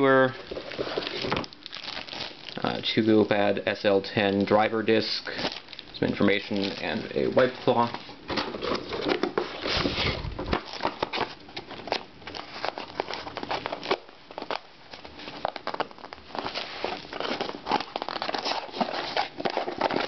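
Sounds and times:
cardboard box rustling and scraping: 0:07.9 - 0:11.3.

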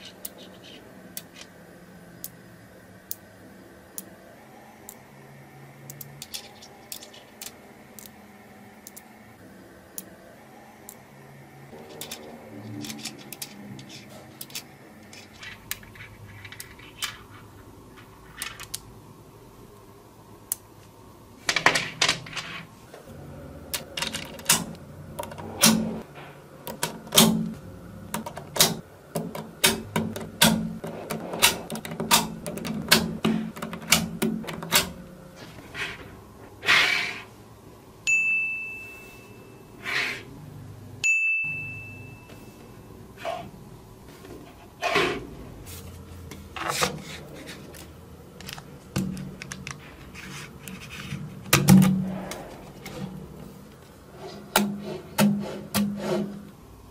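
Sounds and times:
short high ringing tones: 0:38.1 - 0:39.8, 0:41.0 - 0:42.9.

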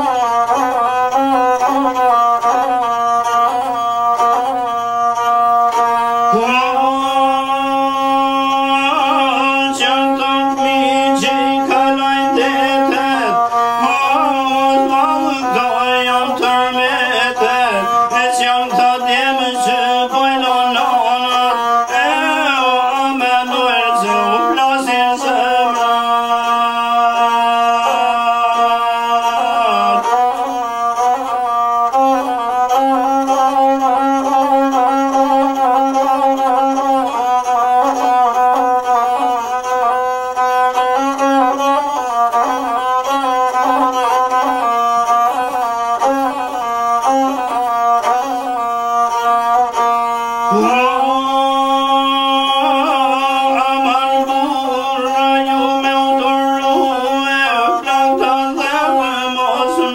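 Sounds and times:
bowed string instrument melody: 0:00.0 - 0:59.9
held drone notes: 0:00.1 - 0:44.6.

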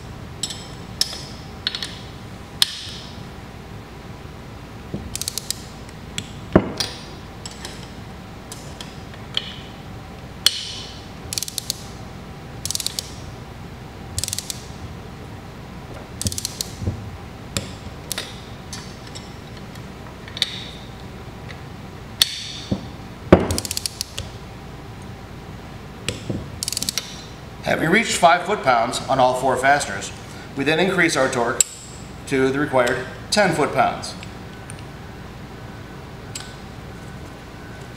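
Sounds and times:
torque wrench clicking: 0:05.1 - 0:07.8, 0:10.4 - 0:11.9, 0:12.6 - 0:13.2, 0:14.2 - 0:14.7, 0:16.2 - 0:16.8, 0:23.5 - 0:24.3, 0:26.6 - 0:27.2.

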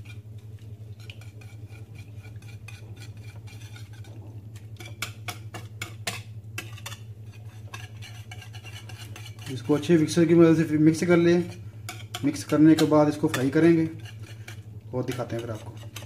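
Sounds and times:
low hum: 0:00.0 - 0:15.8
whisk clicking against bowl: 0:01.0 - 0:16.0.

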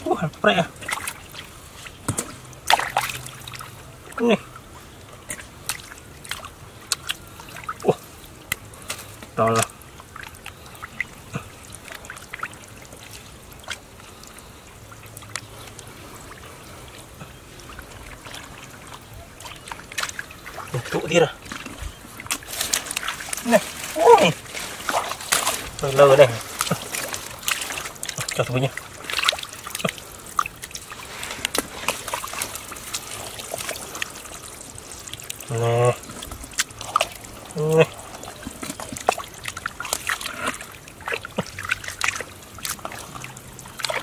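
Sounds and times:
hands splashing in muddy water: 0:00.8 - 0:03.8, 0:16.9 - 0:44.0.

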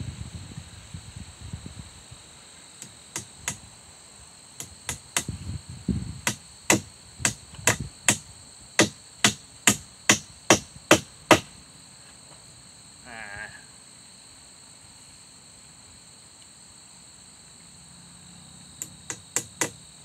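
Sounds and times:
hammer striking nails into logs: 0:02.8 - 0:03.6, 0:04.6 - 0:05.4, 0:06.2 - 0:08.2, 0:08.8 - 0:11.5, 0:18.8 - 0:19.8.

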